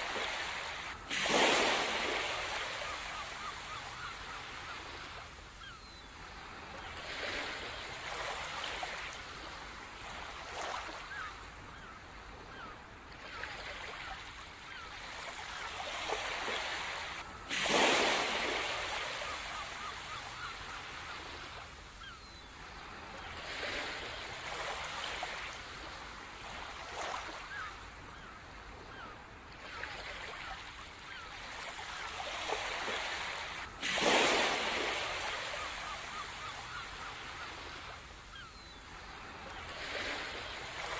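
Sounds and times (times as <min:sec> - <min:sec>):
big waves breaking: 0:00.0 - 0:05.4, 0:15.9 - 0:21.8, 0:32.4 - 0:36.8
ocean surf washing on beach: 0:00.0 - 0:05.4, 0:16.0 - 0:21.8, 0:32.4 - 0:38.2.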